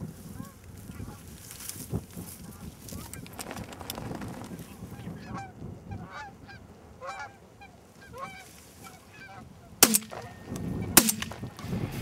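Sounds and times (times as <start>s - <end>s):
geese honking: 4.8s - 11.6s.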